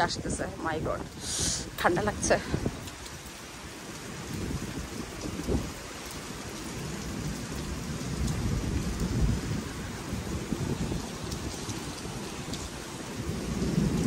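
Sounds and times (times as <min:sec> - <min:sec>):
rain and wind hissing: 0:00.0 - 0:14.0
low thunder rumbling: 0:06.9 - 0:14.0.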